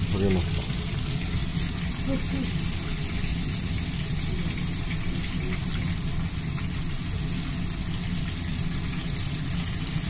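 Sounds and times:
chicken deep-frying in oil: 0:00.0 - 0:10.0.

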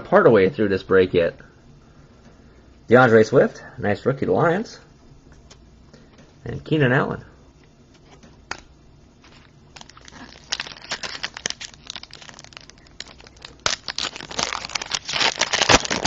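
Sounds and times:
plastic packaging crinkling: 0:09.2 - 0:16.0.

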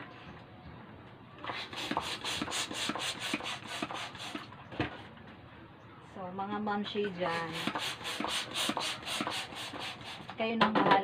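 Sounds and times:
hand balloon pump rushing air: 0:01.4 - 0:04.5, 0:07.2 - 0:10.4.

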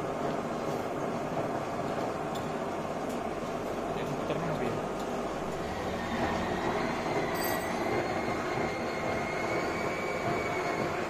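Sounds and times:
metal lathe running: 0:05.3 - 0:11.0
thin high whine: 0:05.6 - 0:11.0.

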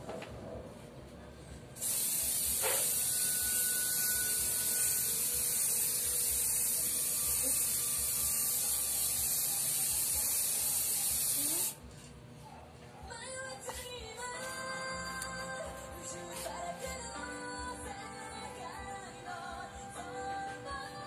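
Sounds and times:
spray can hissing: 0:01.8 - 0:03.6, 0:04.9 - 0:11.8.

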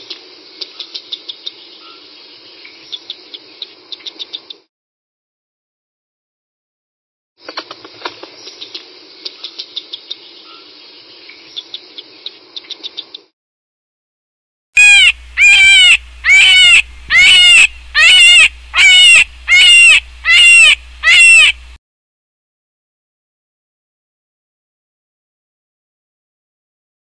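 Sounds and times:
animal calls falling in pitch: 0:14.8 - 0:21.6.

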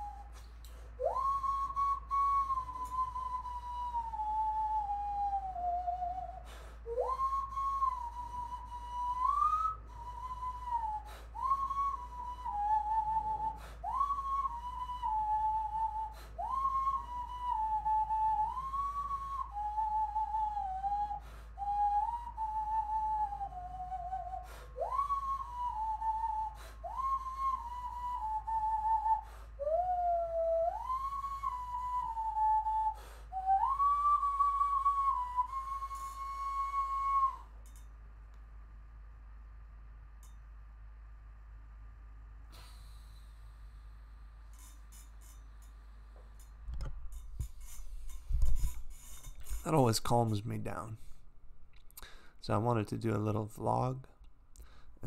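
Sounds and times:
hand whistling melody: 0:00.0 - 0:37.9, 0:42.5 - 0:53.9.

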